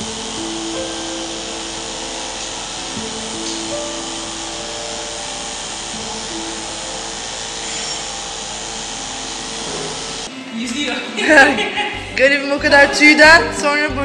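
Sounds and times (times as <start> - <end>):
electric clippers buzzing: 0.0 - 10.4
soft background music: 0.0 - 14.0.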